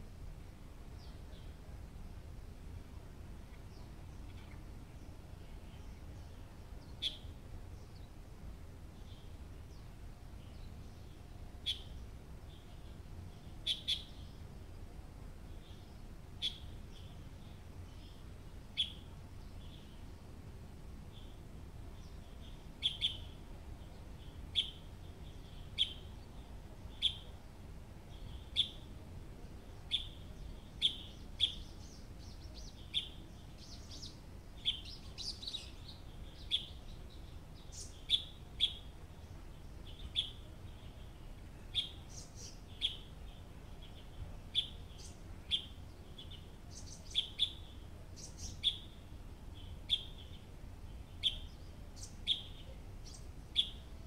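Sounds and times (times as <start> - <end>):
faint low rumble: 0.0 - 54.0
bird chirping: 3.5 - 8.2, 8.9 - 14.8, 15.5 - 20.4, 21.1 - 54.0
higher bird twittering: 13.6 - 14.4, 22.0 - 23.4, 29.9 - 38.9, 51.2 - 53.9.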